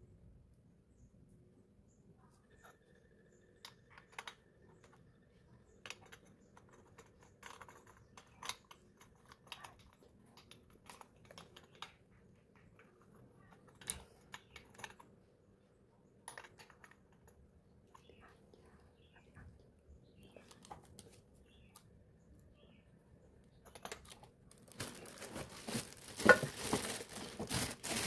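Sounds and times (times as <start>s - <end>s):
clicks and knocks of handled parts: 3.6s - 15.3s, 16.1s - 18.3s, 23.4s - 28.0s.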